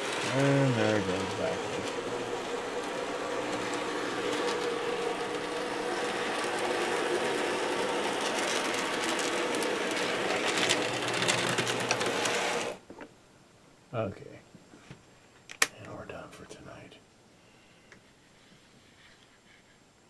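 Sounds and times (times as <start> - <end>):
model train motor running: 0.0 - 12.8
wheels rolling on track: 0.0 - 12.8.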